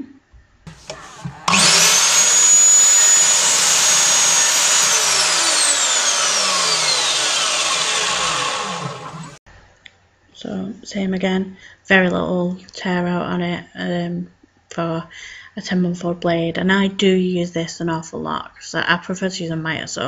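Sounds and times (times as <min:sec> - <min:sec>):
mitre saw motor whining: 0:00.7 - 0:09.4
saw blade cutting wood: 0:00.7 - 0:09.4.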